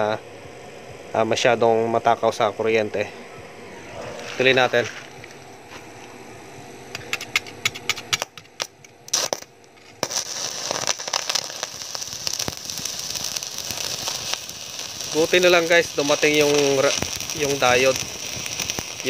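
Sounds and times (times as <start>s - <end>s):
arc welding crackles and pops: 4.4s - 6.2s, 6.8s - 19.0s
crackling hiss of welding arc: 6.9s - 19.0s.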